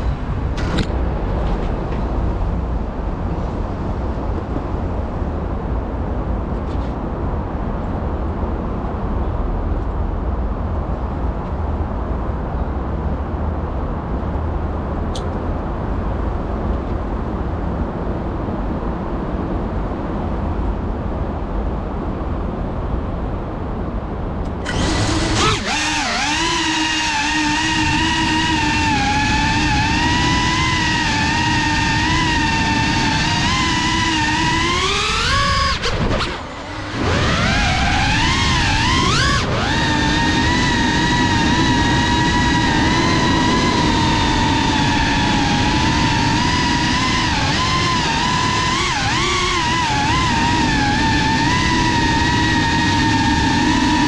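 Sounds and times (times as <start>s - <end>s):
drone motors whining: 0.0s - 2.1s, 24.5s - 54.0s.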